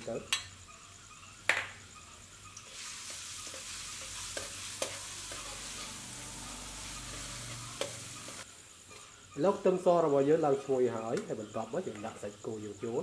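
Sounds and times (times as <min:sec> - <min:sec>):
garlic sizzling in hot oil: 0:01.9 - 0:09.4
spatula tapping and scraping wok: 0:02.6 - 0:09.1.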